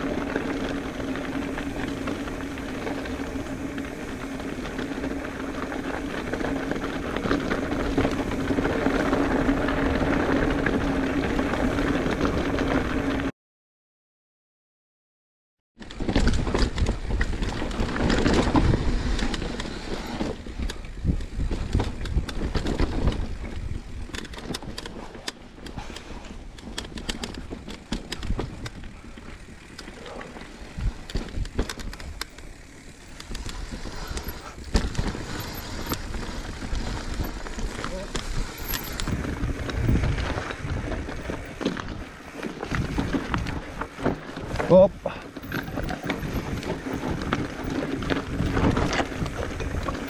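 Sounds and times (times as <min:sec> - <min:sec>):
bike rattling with sharp knocks: 0:00.0 - 0:13.3, 0:15.8 - 0:50.0
tyres rolling over rock: 0:26.8 - 0:50.0.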